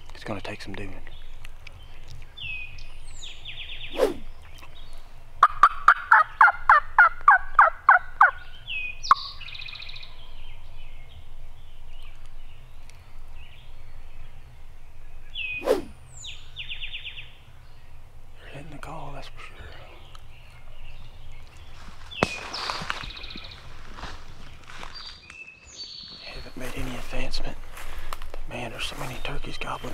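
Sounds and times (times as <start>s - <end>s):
turkey call yelps: 5.4s - 8.4s
turkeys gobbling: 5.4s - 8.5s.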